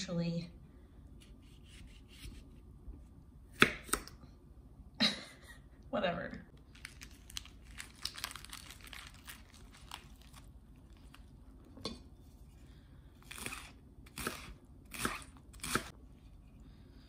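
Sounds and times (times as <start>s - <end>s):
lettuce leaves crinkling: 6.6s - 11.4s.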